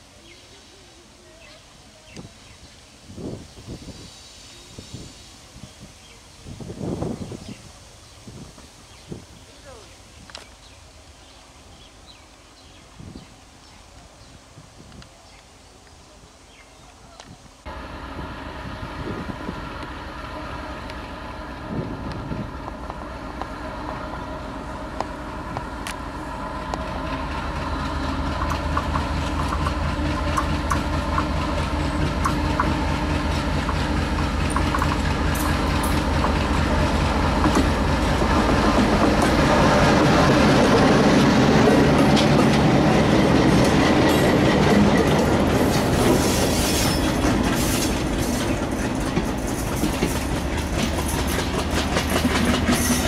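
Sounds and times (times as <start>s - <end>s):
diesel locomotive passing: 17.7s - 53.0s
train wheels clickety-clack: 26.6s - 53.0s.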